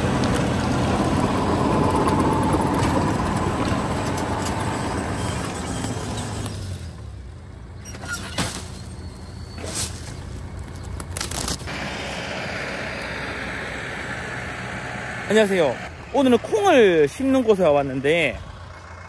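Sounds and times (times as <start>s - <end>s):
tiller churning earth: 0.0s - 7.2s
tractor engine under load: 0.0s - 19.0s.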